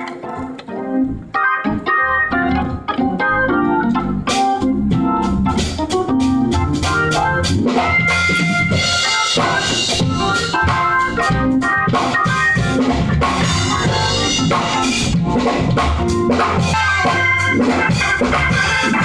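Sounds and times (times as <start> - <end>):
gospel organ chords: 0.0 - 19.0.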